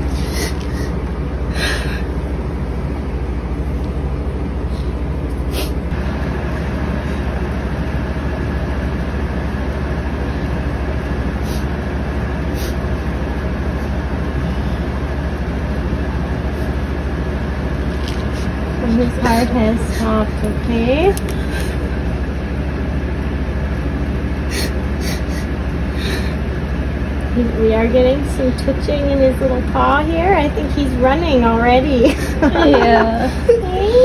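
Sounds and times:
low rumbling drone: 0.0 - 34.0.

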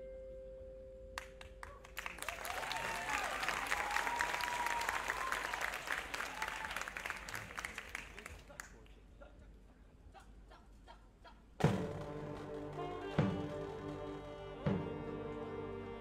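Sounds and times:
audience applauding and cheering: 1.2 - 8.6, 11.8 - 15.1.

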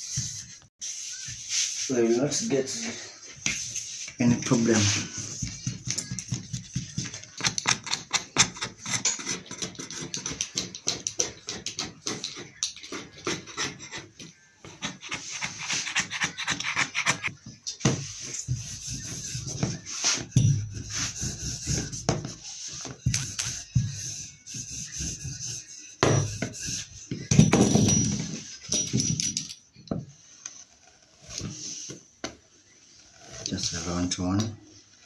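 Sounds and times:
rolling pin rolling fondant: 3.4 - 27.3.

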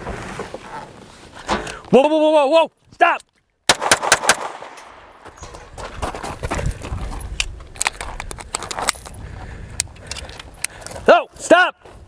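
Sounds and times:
gunfire bursts: 3.7 - 5.2
hurried footsteps on gravel: 5.2 - 12.0.

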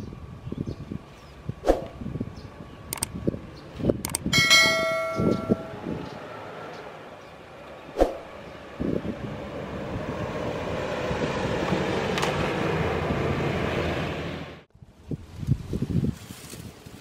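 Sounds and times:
wind on microphone: 0.0 - 6.3, 7.9 - 12.0, 14.7 - 17.0
sharp click: 2.9 - 3.1, 4.0 - 4.3.

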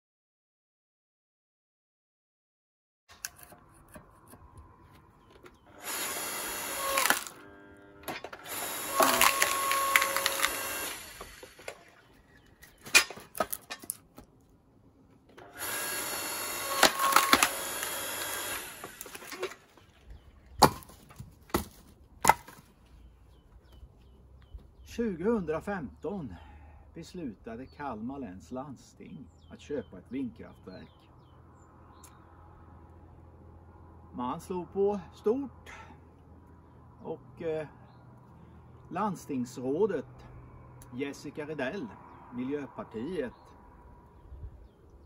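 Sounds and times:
electric log splitter running: 5.6 - 12.1, 15.3 - 19.8
wood cracking and splintering: 5.8 - 7.4, 8.1 - 14.3, 16.4 - 22.6
sharp knocks of wood: 20.6 - 22.7.

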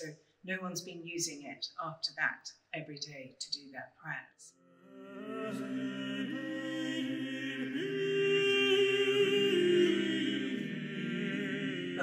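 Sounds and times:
voices singing a slow chant: 4.8 - 12.0.

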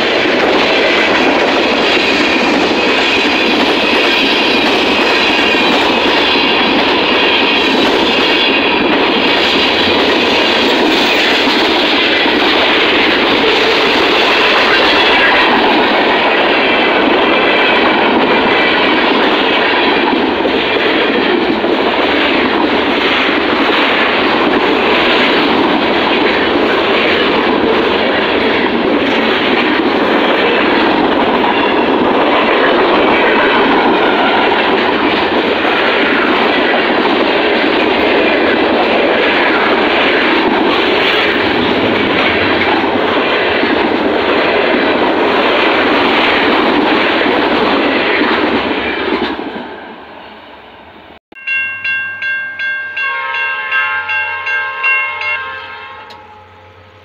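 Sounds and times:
freight train rumbling past: 0.0 - 57.0
crossing bell ringing: 30.8 - 32.8, 51.3 - 57.0.

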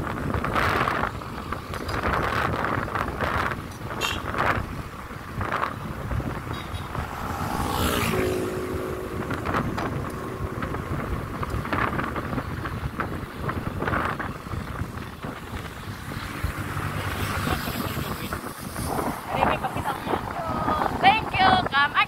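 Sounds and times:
wind buffeting microphone: 0.0 - 22.0
vehicle moving: 4.4 - 21.0
short pitched sound dropping: 6.8 - 11.5.

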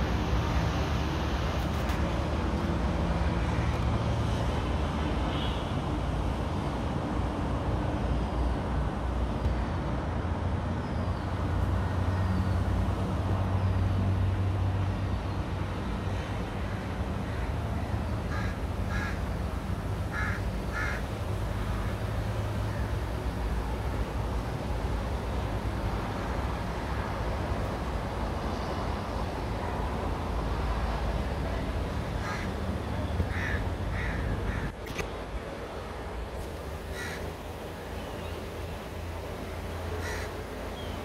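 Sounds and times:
crow cawing: 18.3 - 19.2, 20.1 - 21.0, 32.2 - 32.5, 33.3 - 34.7, 36.9 - 37.2, 40.0 - 40.4.

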